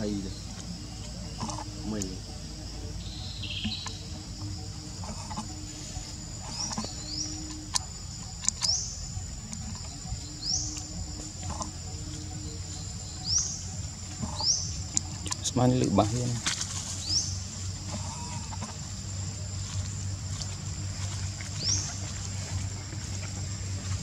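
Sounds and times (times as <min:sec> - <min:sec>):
sharp clicks: 0:06.5 - 0:08.8.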